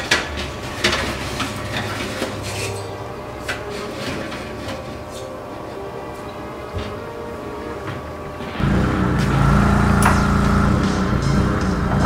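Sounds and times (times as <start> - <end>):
oven rack scraping: 0.0 - 5.5
low hum: 8.4 - 12.0.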